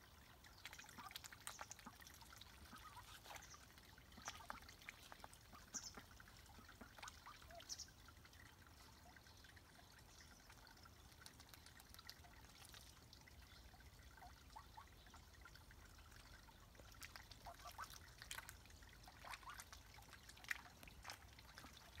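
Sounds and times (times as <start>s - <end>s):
ducks splashing in water: 0.0s - 22.0s
ducks quacking softly: 0.8s - 8.0s, 14.0s - 22.0s.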